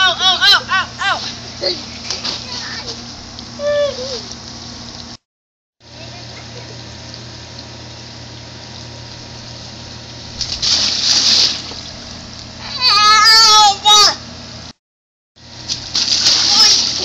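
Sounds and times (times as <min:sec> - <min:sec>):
wet swoosh and splash: 0:10.3 - 0:11.9, 0:15.7 - 0:17.0.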